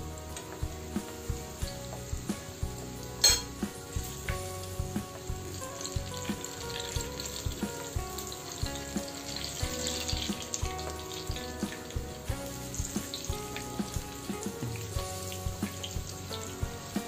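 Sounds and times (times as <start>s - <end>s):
oil sizzling while deep-frying: 0.0s - 17.0s.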